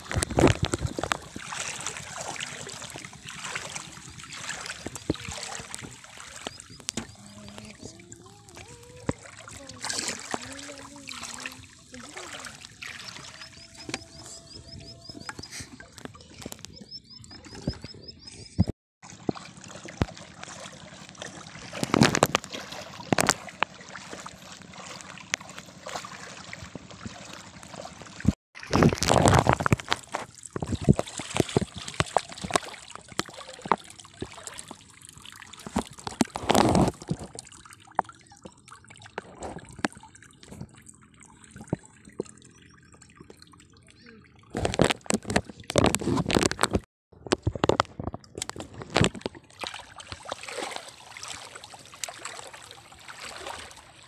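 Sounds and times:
water sloshing and dripping: 0.0 - 54.0
people talking: 7.0 - 13.2.

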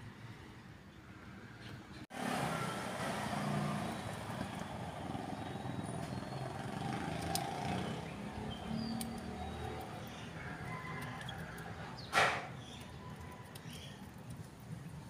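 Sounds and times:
traffic rumble: 0.0 - 15.0
pruning scissors snipping: 8.8 - 10.0.

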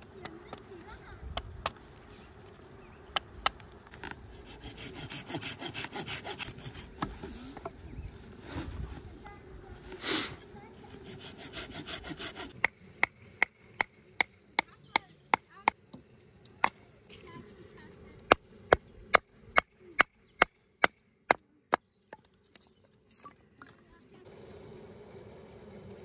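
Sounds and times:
blade scraping wooden stick: 3.9 - 7.8, 10.0 - 12.7.

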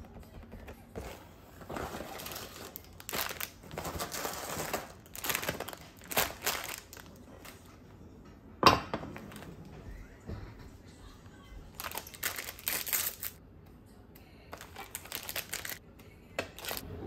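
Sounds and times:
foil packets crinkling: 1.6 - 7.7, 11.7 - 13.4, 14.5 - 15.8, 16.5 - 16.8.

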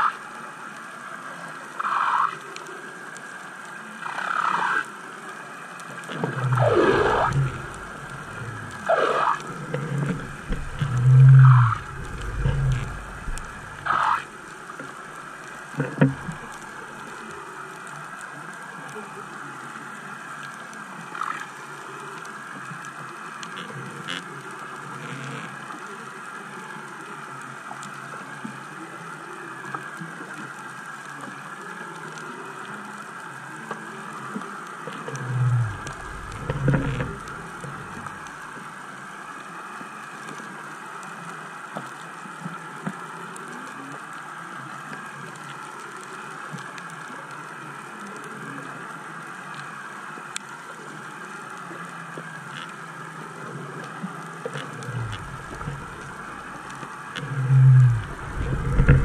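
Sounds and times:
muffled underwater hiss: 0.0 - 59.0
low thuds: 10.1 - 13.9, 57.7 - 59.0.

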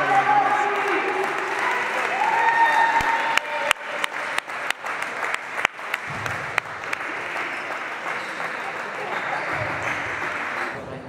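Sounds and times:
spectators applauding: 0.0 - 10.8
crowd noise: 0.0 - 11.0
sharp individual claps: 3.0 - 10.8.

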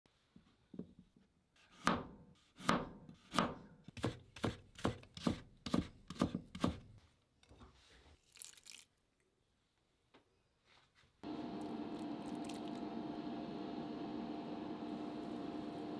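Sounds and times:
knife chopping on cutting board: 1.7 - 6.9
soft rustle: 9.6 - 11.2.

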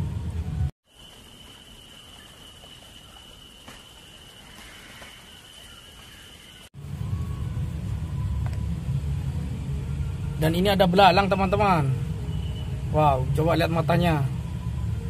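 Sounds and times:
low rumble: 0.0 - 0.7, 6.8 - 15.0
high-pitched insect drone: 0.9 - 15.0.

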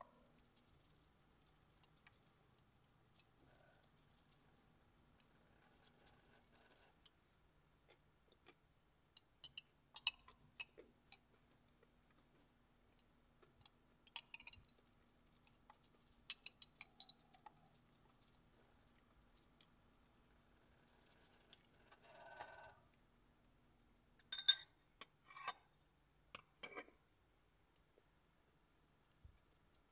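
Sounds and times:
jar rustling: 0.2 - 7.0
metal spoon scraping glass jar: 24.3 - 25.7.

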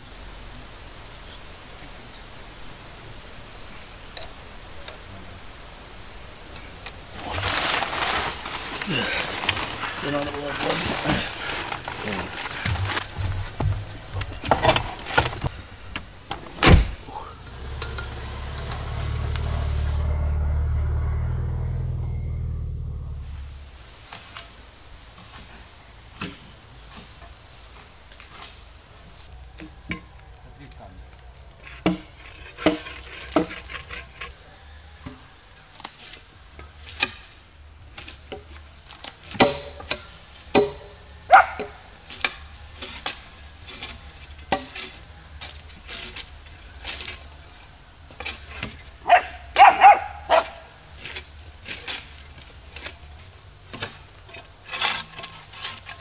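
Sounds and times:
shovel scraping bark off logs: 7.2 - 15.5, 16.7 - 20.5, 31.6 - 34.4, 35.8 - 56.0.

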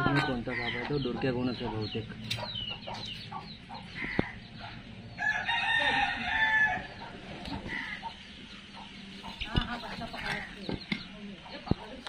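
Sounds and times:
rooster crowing: 5.2 - 8.0.

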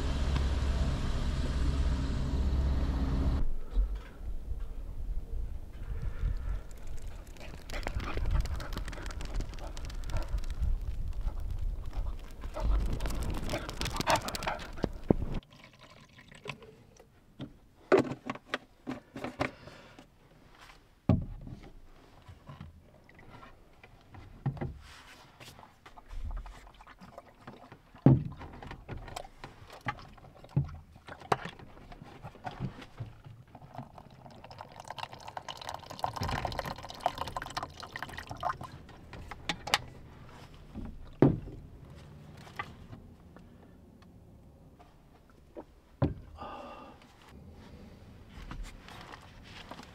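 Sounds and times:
liquid pouring into cup: 15.4 - 16.8, 33.6 - 38.8.

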